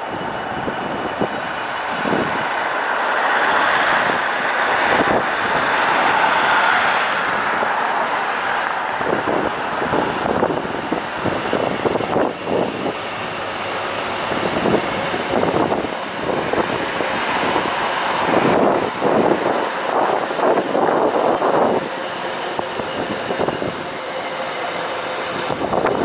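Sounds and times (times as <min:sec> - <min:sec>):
train engine roaring: 0:00.0 - 0:26.0.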